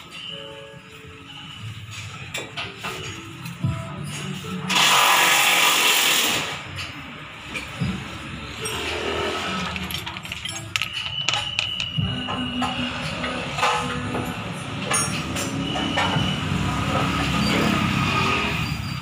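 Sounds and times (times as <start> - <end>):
metal tools clicking and knocking: 8.5 - 14.2.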